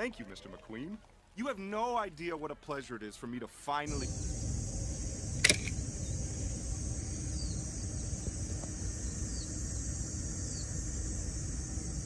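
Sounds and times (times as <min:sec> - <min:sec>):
bird chirping: 0:03.9 - 0:12.0
insect drone: 0:03.9 - 0:12.0
low rumble: 0:03.9 - 0:12.0.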